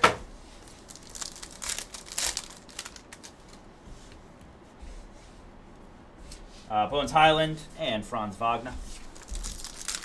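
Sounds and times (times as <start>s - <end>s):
foil wrapper crinkling: 0.6s - 3.6s, 9.0s - 10.0s.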